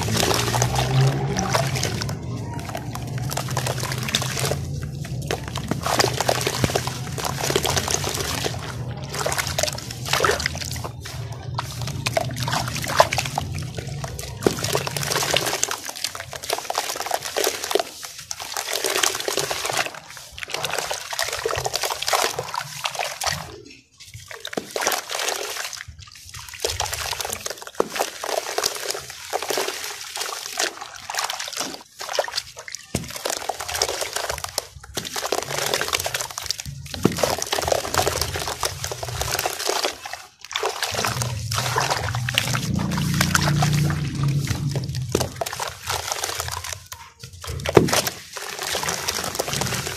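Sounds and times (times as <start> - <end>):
water sloshing and trickling: 0.0 - 49.9
wet cement chunks crumbling: 0.0 - 49.9
chunks dropping into water: 31.0 - 49.9.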